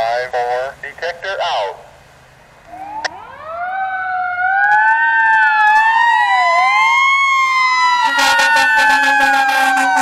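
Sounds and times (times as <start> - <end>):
fire truck sirens wailing: 2.6 - 10.0.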